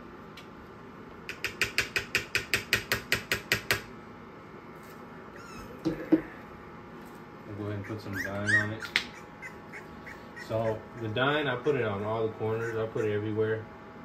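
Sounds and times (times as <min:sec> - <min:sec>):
puppy squeaking: 0:05.4 - 0:06.1, 0:07.6 - 0:13.4.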